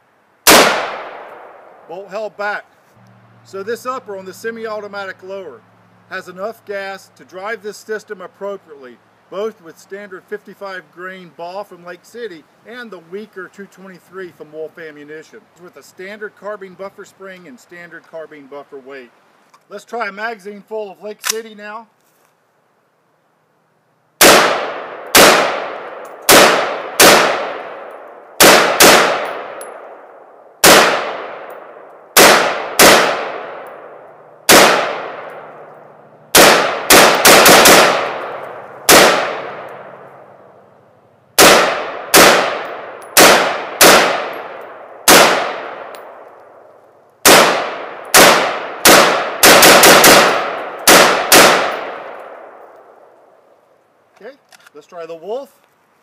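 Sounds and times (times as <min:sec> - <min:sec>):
rifle shots echoing: 0:00.4 - 0:01.8, 0:24.2 - 0:40.3, 0:41.4 - 0:46.6, 0:47.2 - 0:53.1.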